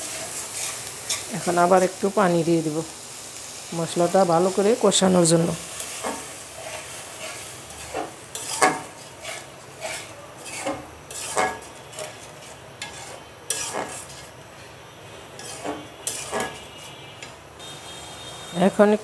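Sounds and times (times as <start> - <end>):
metal spatula scraping pan: 0.0 - 1.3, 5.7 - 17.4
light sizzle: 0.0 - 19.0.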